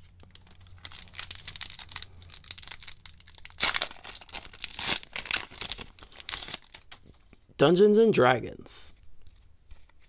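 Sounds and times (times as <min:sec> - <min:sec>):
foil wrapper ripping: 0:00.0 - 0:07.0
foil wrapper crinkling: 0:00.0 - 0:07.2.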